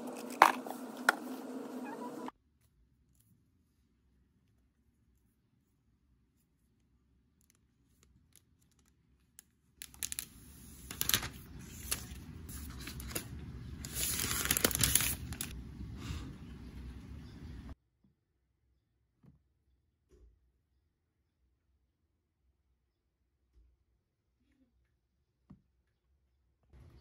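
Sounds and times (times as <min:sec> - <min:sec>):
plastic wrap peeling and crinkling: 0:09.8 - 0:15.6.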